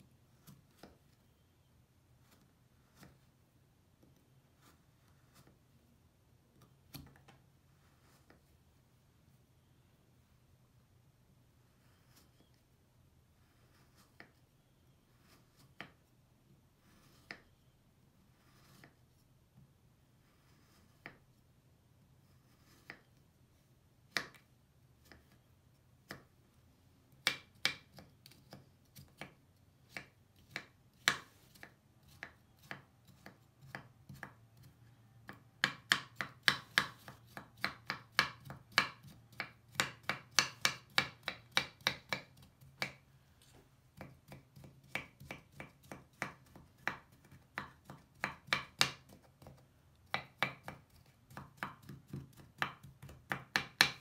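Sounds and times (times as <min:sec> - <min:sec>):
knife chopping on wooden board: 0:27.2 - 0:43.0, 0:43.9 - 0:54.0.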